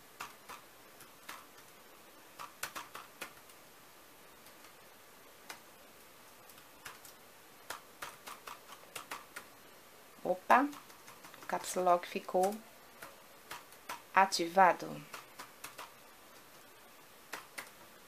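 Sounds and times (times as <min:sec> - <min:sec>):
keyboard keys clicking: 0:02.4 - 0:03.6, 0:06.5 - 0:09.5, 0:15.0 - 0:16.6.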